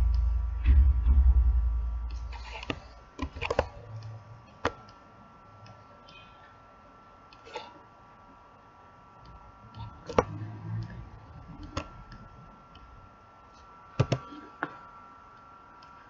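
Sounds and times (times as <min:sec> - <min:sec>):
brief low rumble: 0:00.0 - 0:02.6
faint steady whine: 0:00.0 - 0:16.0.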